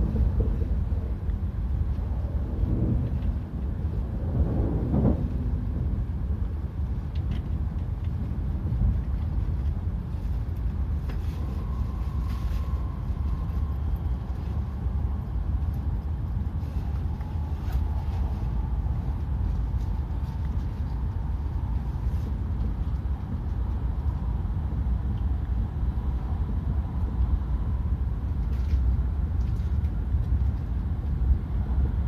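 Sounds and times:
train rumble inside carriage: 0.0s - 32.0s
faint high whine: 11.0s - 20.6s.

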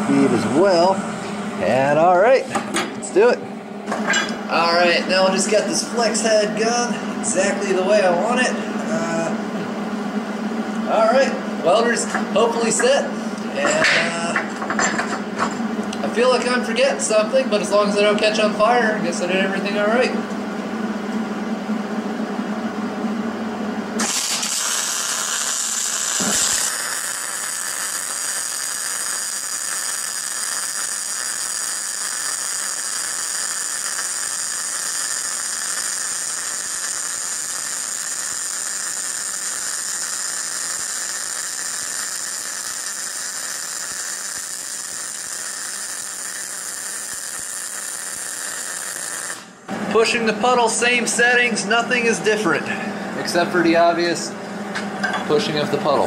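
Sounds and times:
welding arc hissing: 24.0s - 52.2s.

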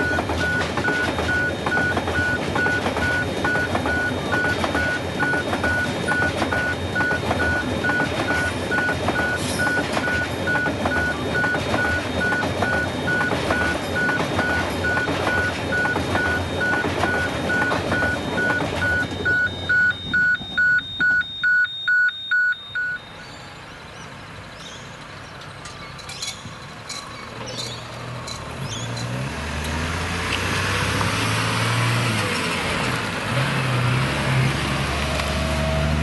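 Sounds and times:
train wagons rolling on rails: 0.0s - 20.8s, 24.2s - 29.8s.

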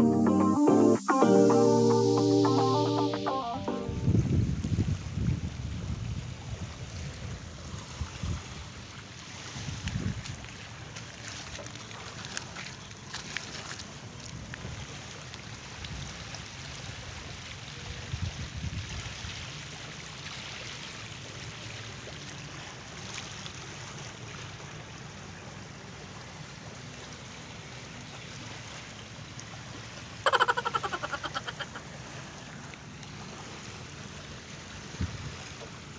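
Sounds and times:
wind gusts on microphone: 3.9s - 8.5s, 9.6s - 10.4s.

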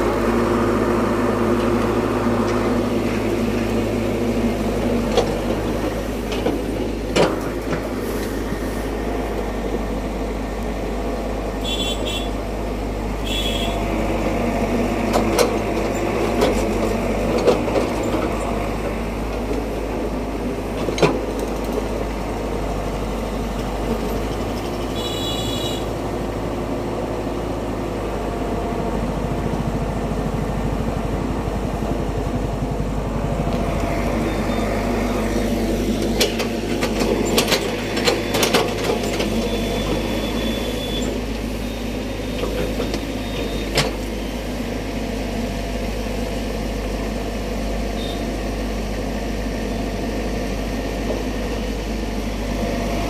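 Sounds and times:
excavator diesel engine running: 0.0s - 53.0s.

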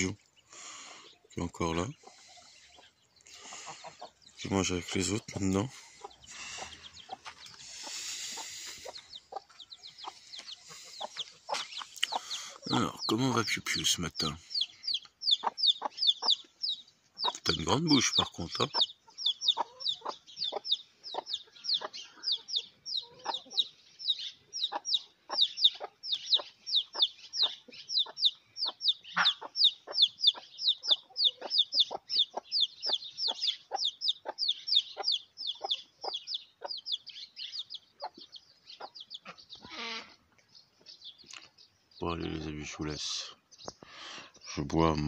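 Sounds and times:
chick peeping: 0.0s - 45.0s
hen clucking low: 1.4s - 16.5s, 24.6s - 34.4s.

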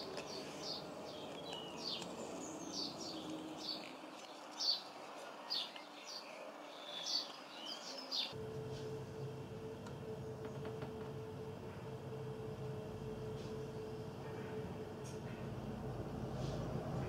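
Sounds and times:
small birds chirping: 0.0s - 8.4s
low steady hum: 0.0s - 17.0s
outdoor background noise: 0.0s - 17.0s.

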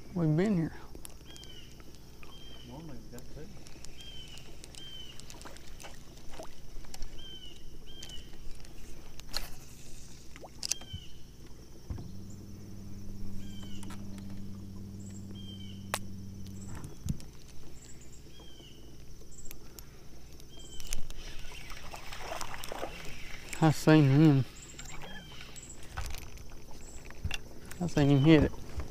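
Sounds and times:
electric motor humming: 11.4s - 19.0s.

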